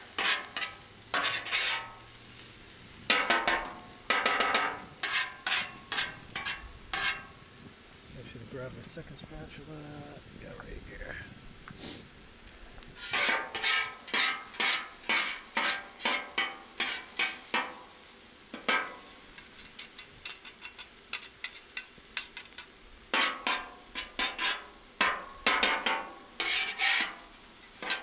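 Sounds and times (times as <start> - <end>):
metal spatulas scraping on griddle: 0.0 - 2.4, 3.1 - 7.4, 13.0 - 28.0
food sizzling on griddle: 0.0 - 28.0.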